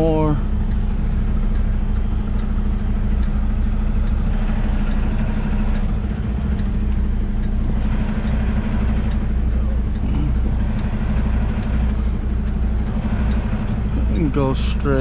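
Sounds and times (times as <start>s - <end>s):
diesel truck engine running: 0.0s - 15.0s
faint regular ticks: 0.6s - 15.0s.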